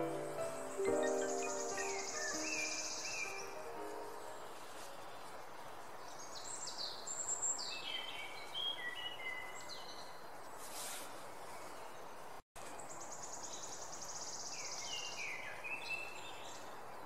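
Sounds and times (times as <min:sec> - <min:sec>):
bird chirping and whistling: 0:00.0 - 0:03.5
outdoor hiss: 0:00.0 - 0:09.0, 0:09.8 - 0:17.0.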